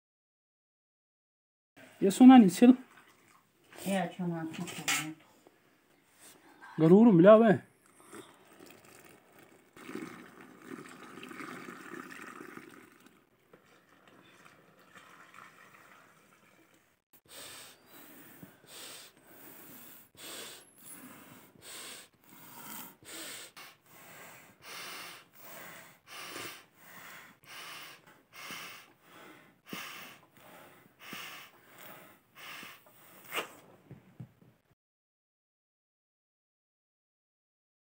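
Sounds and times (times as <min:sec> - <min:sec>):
water poured into a cup: 0:02.8 - 0:03.5, 0:07.9 - 0:16.9
man blowing air by mouth: 0:17.2 - 0:33.7.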